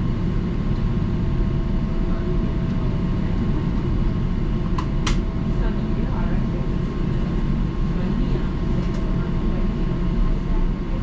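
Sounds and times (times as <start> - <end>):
idling streetcar rumble: 0.0 - 11.0.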